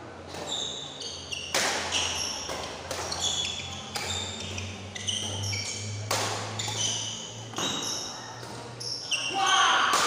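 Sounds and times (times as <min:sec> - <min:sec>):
shoes squeaking on court: 0:00.2 - 0:09.8
rackets smacking shuttlecock: 0:01.4 - 0:08.8.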